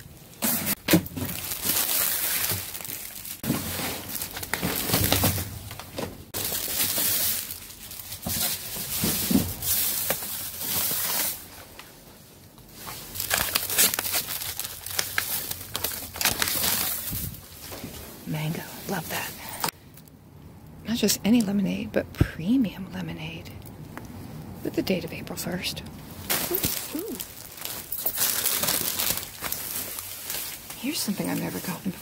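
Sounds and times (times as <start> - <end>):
plastic bags crinkling: 0.4 - 11.8, 12.6 - 18.0, 26.2 - 32.0.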